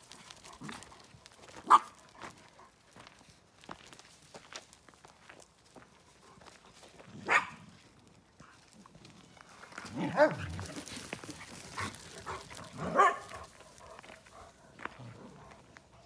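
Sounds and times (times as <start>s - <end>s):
dog barking: 1.6s - 2.0s, 7.2s - 7.6s, 10.0s - 10.4s, 12.3s - 13.5s.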